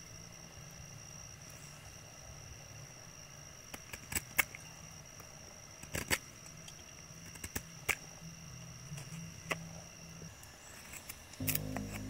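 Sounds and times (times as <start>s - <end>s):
faint high-pitched whine: 0.0s - 12.0s
low hum: 11.4s - 12.0s.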